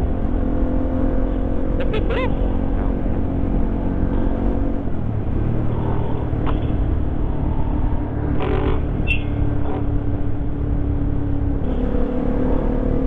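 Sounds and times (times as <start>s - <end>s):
motorcycle engine cruising: 0.0s - 13.0s
wind and road noise: 0.0s - 13.0s.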